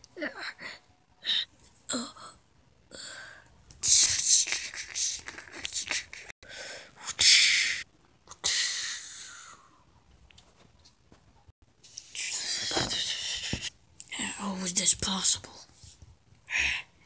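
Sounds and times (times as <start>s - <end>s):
person making hissing mouth sounds: 3.8s - 6.3s, 7.0s - 9.7s, 12.0s - 13.8s.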